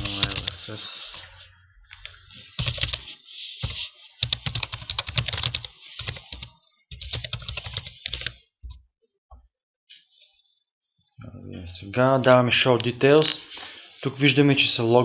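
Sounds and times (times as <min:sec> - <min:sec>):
computer keyboard typing: 0:00.0 - 0:00.7, 0:01.9 - 0:08.8.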